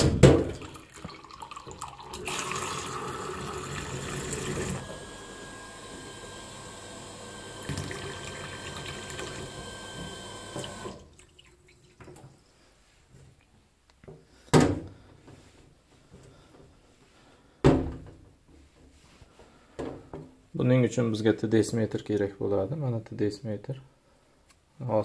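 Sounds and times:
tap water running into sink: 0.4s - 12.3s.

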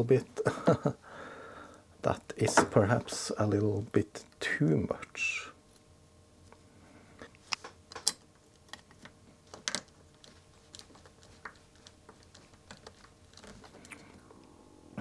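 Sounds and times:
chip legs clicking on plastic: 7.5s - 14.0s.

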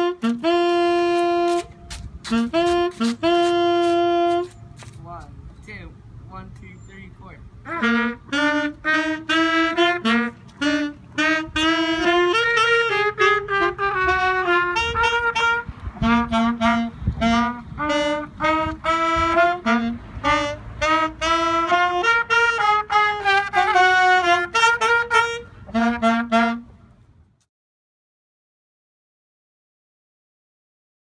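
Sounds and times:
trumpet: 0.0s - 4.6s, 7.6s - 26.7s
saxophone: 0.0s - 5.0s, 7.6s - 27.0s
small wind instrument: 0.0s - 5.3s, 7.4s - 27.4s.

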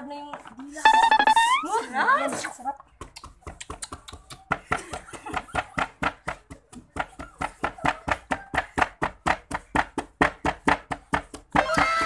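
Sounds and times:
pestle pounding in wooden mortar: 2.9s - 12.0s.

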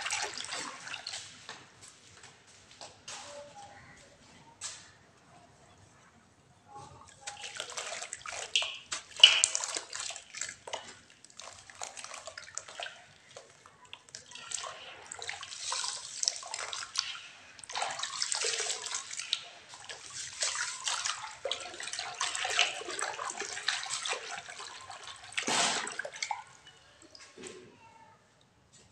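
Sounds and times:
water splashing and sloshing: 0.0s - 3.5s, 6.8s - 27.6s.

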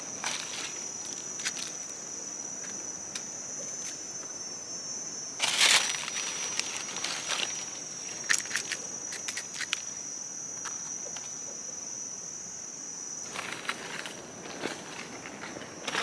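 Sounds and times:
high-pitched insect drone: 0.0s - 16.0s
dry leaves rustling and twigs snapping: 5.4s - 9.9s, 13.3s - 16.0s.

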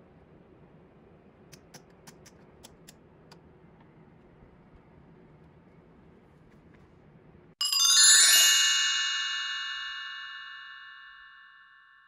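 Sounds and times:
bell-like chime notes: 7.6s - 12.0s.

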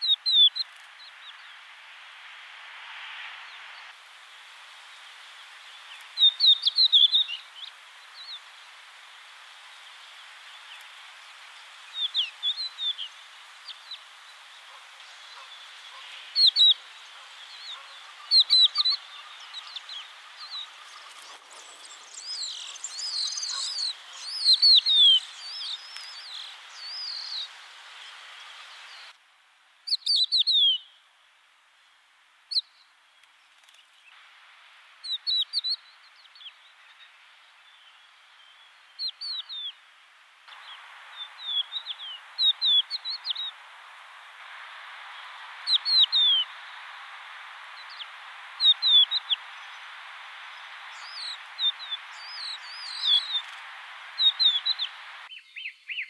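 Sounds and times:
lark singing whistles: 0.0s - 0.7s, 5.8s - 8.4s, 15.1s - 27.5s, 29.9s - 30.9s, 35.0s - 36.6s, 37.7s - 39.8s, 40.5s - 43.6s, 45.1s - 46.8s, 47.8s - 49.9s, 50.5s - 56.0s
steady background hiss: 0.0s - 56.0s.

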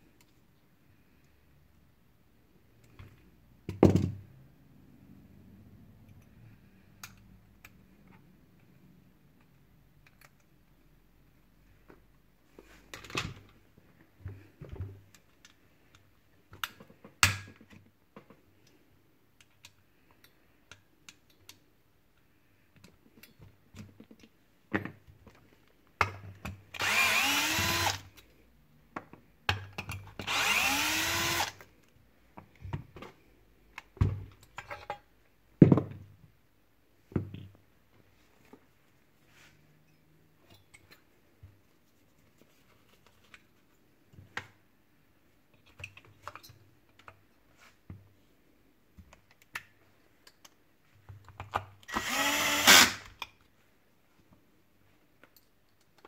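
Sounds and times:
cordless drill whining: 26.8s - 28.1s, 30.2s - 31.6s, 51.9s - 53.1s.

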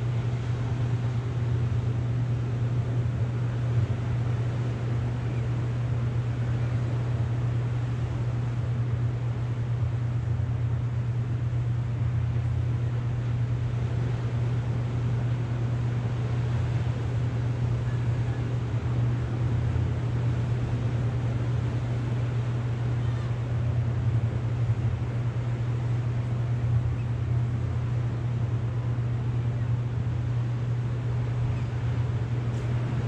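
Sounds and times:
distant surf: 0.0s - 33.0s
wind: 0.0s - 33.0s.

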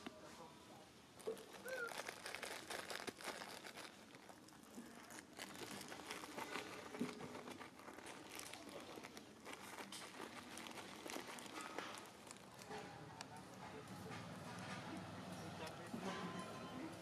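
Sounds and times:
rustling clicks on stone: 1.2s - 13.4s
monkey chewing fruit: 1.2s - 15.3s.

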